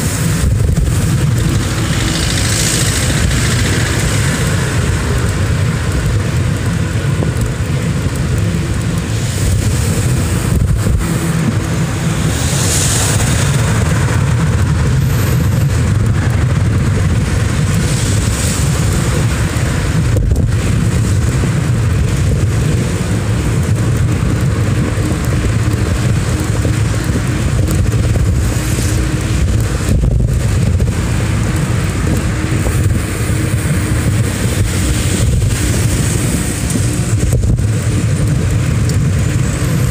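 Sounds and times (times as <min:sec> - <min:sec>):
cars driving alongside: 0:00.0 - 0:39.9
road and wind noise: 0:00.0 - 0:39.9.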